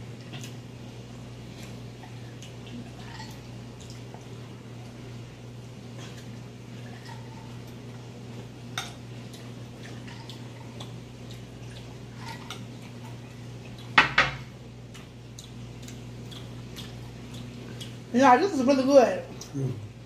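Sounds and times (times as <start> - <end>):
low steady hum: 0.0 - 20.0.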